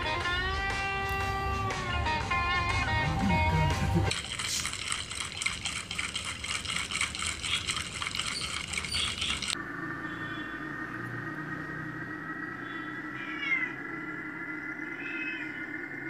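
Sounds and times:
guitar music: 0.0s - 4.1s
kittens lapping milk: 4.0s - 9.6s.

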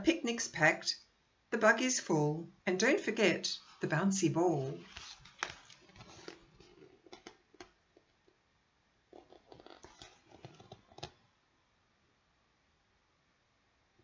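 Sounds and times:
book pages turning: 4.8s - 7.7s, 9.2s - 11.2s.

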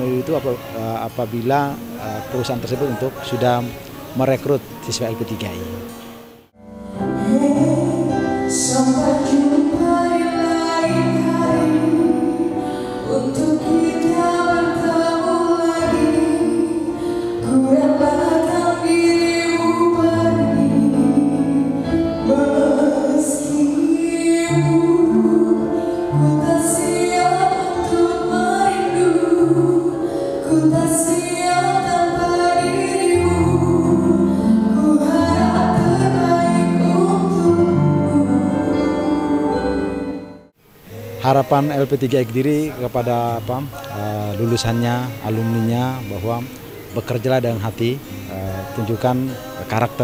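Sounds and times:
woman singing into microphone: 6.9s - 40.3s.

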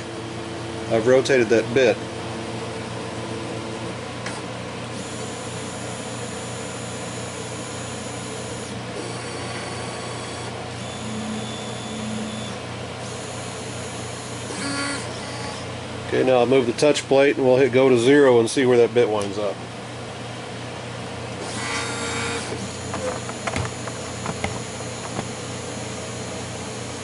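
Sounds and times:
steady low hum: 21.2s - 27.0s
stepper motors whining: 21.4s - 27.0s.

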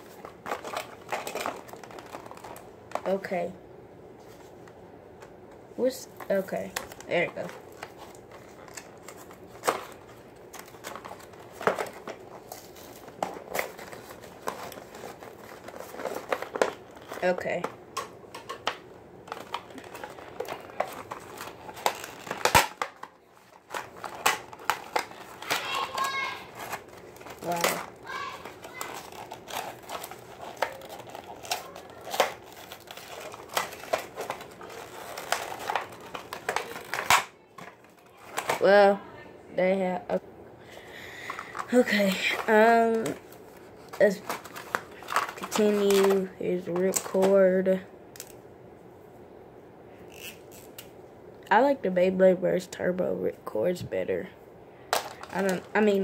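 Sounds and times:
plastic packaging crinkling: 0.0s - 3.2s, 6.2s - 38.7s, 41.1s - 47.4s, 54.9s - 56.0s.

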